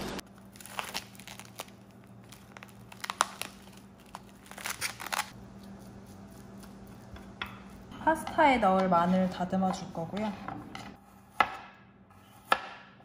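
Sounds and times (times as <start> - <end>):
plastic wrap crinkling: 0.3 - 5.4.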